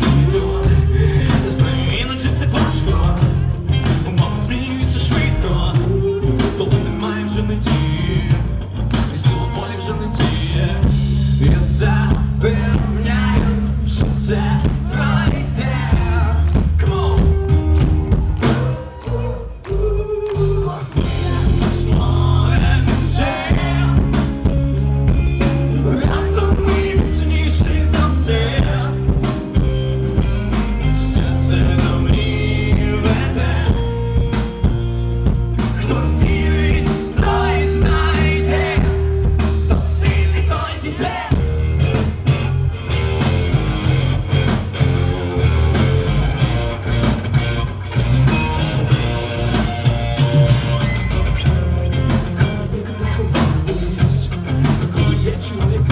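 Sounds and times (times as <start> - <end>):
man singing: 0.0 - 17.6, 18.5 - 24.6, 25.5 - 29.4, 30.8 - 34.3, 35.7 - 41.5, 52.3 - 55.9
live rock band playing: 0.0 - 55.9.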